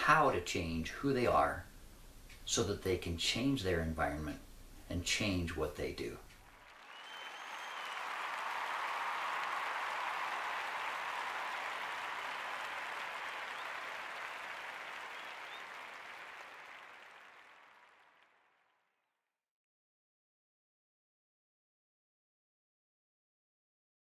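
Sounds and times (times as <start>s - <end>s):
crowd applauding: 6.4s - 18.6s.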